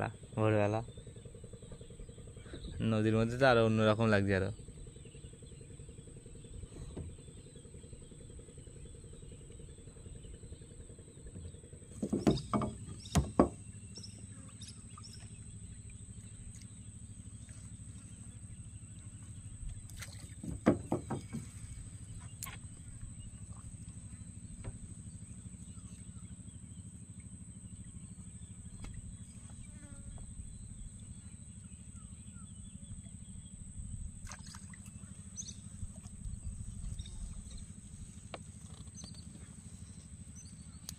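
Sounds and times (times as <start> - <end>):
steady low hum: 0.0 - 40.9
knocks and thuds against boat: 6.7 - 7.4, 11.9 - 14.3, 19.1 - 25.2.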